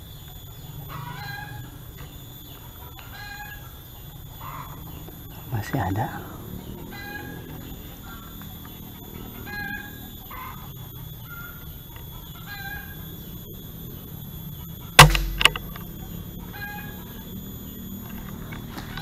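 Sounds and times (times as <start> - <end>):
air rifle shot: 15.0 - 15.8.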